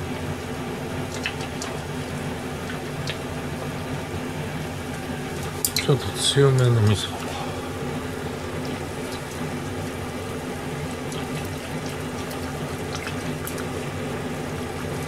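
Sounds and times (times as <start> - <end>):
soup bubbling and hissing: 6.8 - 15.0.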